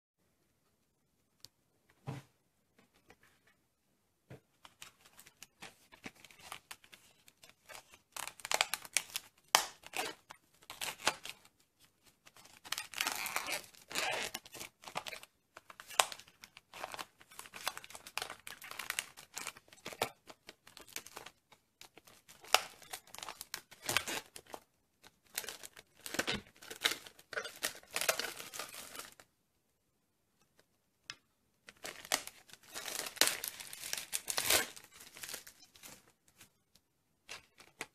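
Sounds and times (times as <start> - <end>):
plastic packaging crinkling and tearing: 4.6 - 29.2, 31.7 - 36.5, 37.2 - 37.9.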